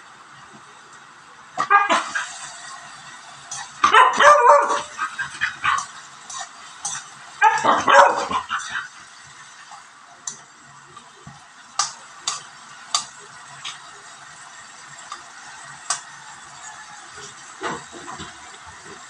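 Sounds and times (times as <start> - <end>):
dog barking: 1.6 - 2.2, 3.8 - 5.8, 7.4 - 8.7
spatula scraping a wok: 2.0 - 19.0.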